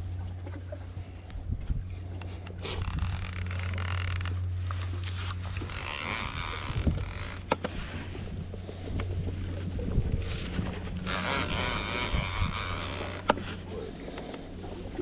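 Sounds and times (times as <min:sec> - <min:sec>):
boat motor humming: 0:00.0 - 0:15.0
reel clicks: 0:02.0 - 0:07.8, 0:10.9 - 0:14.6
fishing reel gears whirring: 0:02.2 - 0:08.2, 0:10.5 - 0:13.6.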